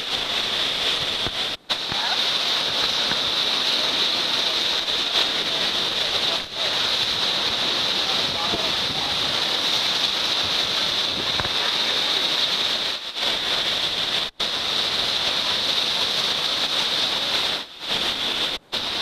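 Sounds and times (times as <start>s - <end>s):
surf on the shore: 0.0s - 19.0s
storm wind: 4.8s - 15.7s.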